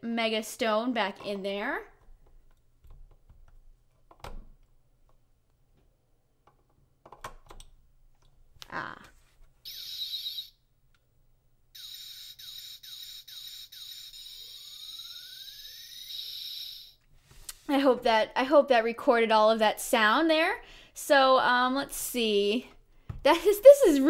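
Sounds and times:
warbling electronic chirp: 9.7s - 10.6s, 11.8s - 17.0s
pulsing electronic tone: 11.8s - 17.0s.

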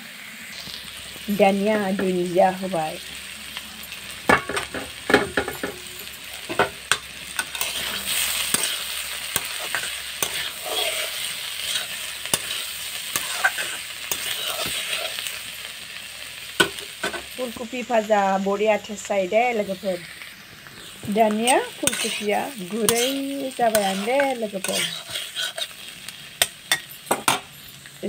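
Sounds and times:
food sizzling in a pan: 0.0s - 28.0s
spatula scraping a pan: 6.4s - 15.5s, 20.8s - 27.4s.

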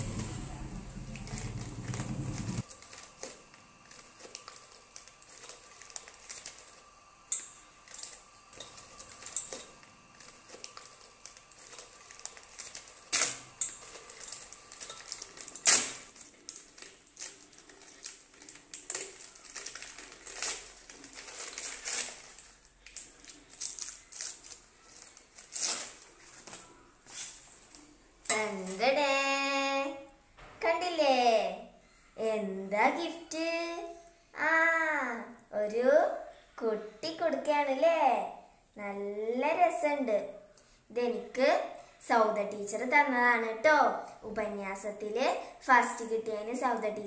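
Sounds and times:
low hum: 0.0s - 4.1s
wrapping paper crinkling: 1.0s - 28.8s.

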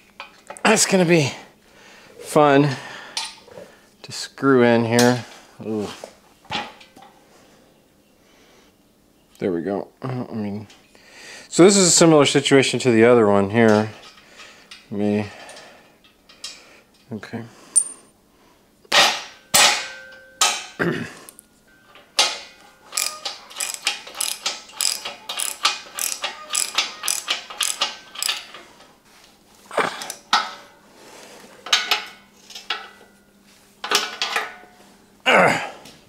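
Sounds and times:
sharp metal knocks: 18.9s - 20.8s
socket ratchet clicking: 22.9s - 28.4s.

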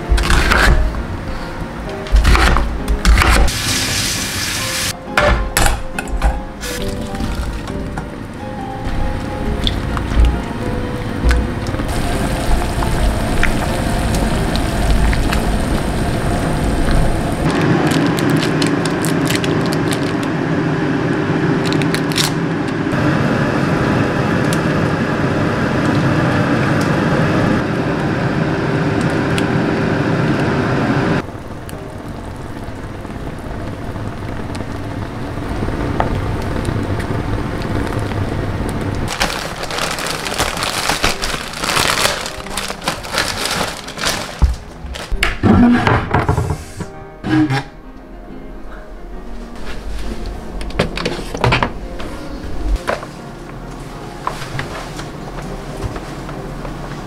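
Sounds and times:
plastic wrapper crinkling: 17.5s - 20.3s, 39.1s - 45.2s.

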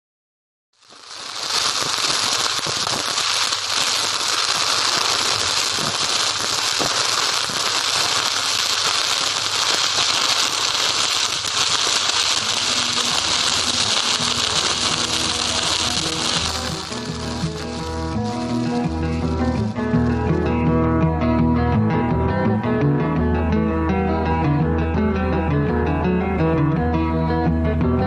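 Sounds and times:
welding arc hissing: 0.8s - 20.2s.

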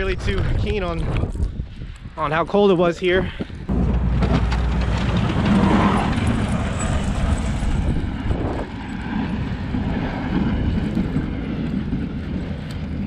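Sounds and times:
diesel truck passing: 3.7s - 8.9s.

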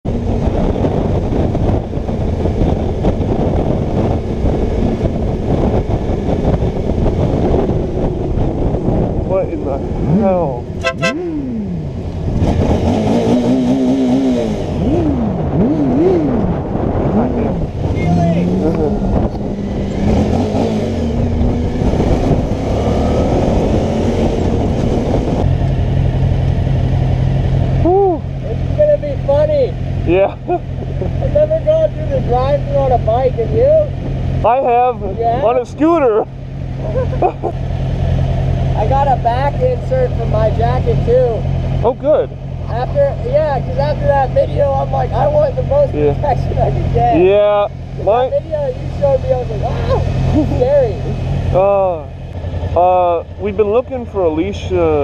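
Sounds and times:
wind rushing over microphone: 0.0s - 29.8s
motorcycle engine running: 0.1s - 55.0s
engine idling low: 25.4s - 55.0s.

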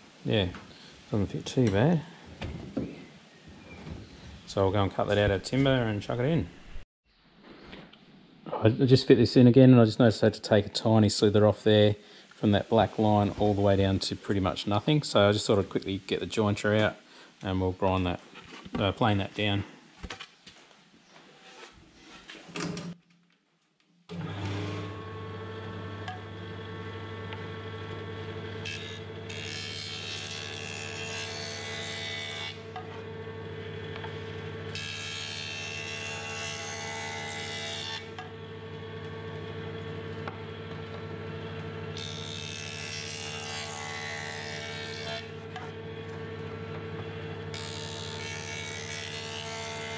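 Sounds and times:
jointer cutting wood: 24.1s - 49.9s
jointer motor humming: 24.1s - 49.9s.

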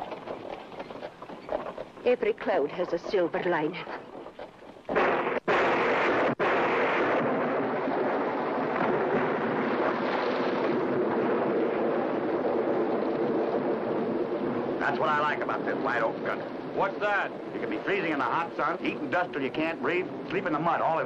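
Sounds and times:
wind and heavy rain: 3.6s - 21.0s.

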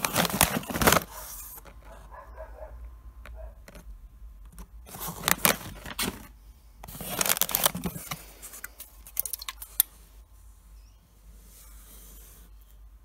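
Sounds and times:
plastic packaging crinkling: 0.0s - 2.0s, 4.8s - 9.9s.

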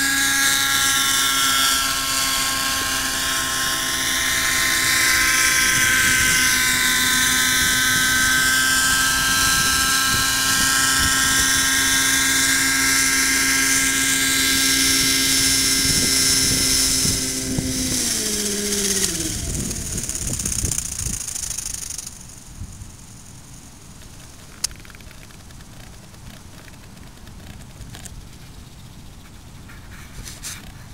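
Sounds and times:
rc helicopter engine and rotors: 0.0s - 30.9s.

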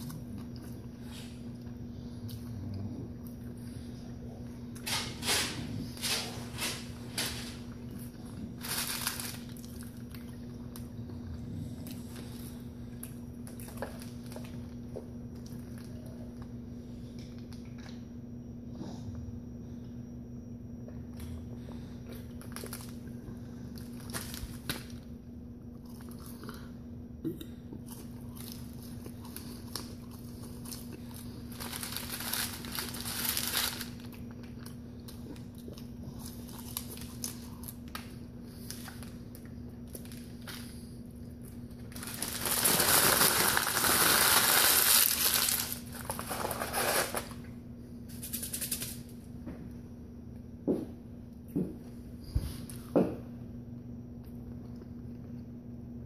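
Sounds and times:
paper wrapper rustling: 8.6s - 9.9s, 31.5s - 34.1s, 41.9s - 47.4s.

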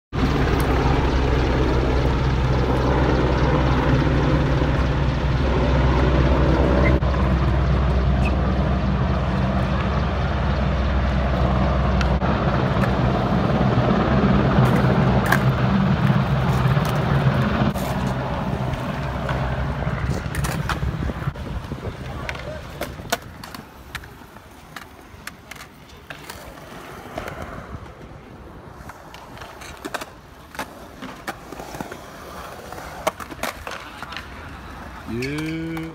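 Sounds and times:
helicopter rotors droning: 0.1s - 35.9s
skateboard wheels rolling on concrete: 0.1s - 35.9s
skateboards clacking on ground: 14.6s - 35.9s.

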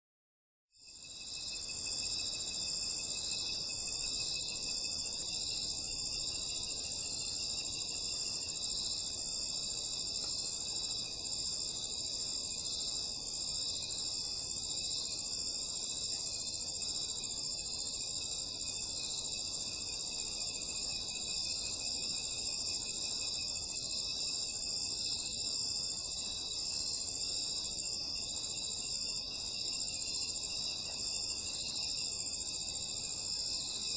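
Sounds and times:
crickets and insects trilling: 0.8s - 33.9s.

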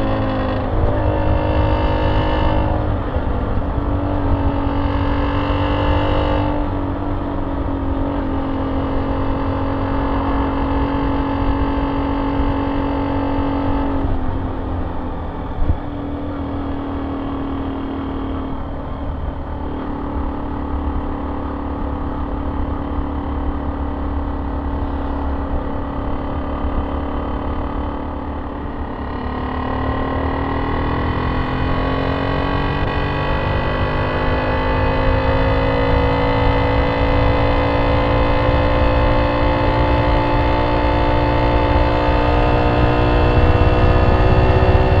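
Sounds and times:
motorcycle engine running: 0.0s - 45.0s
wind on microphone: 30.8s - 45.0s.

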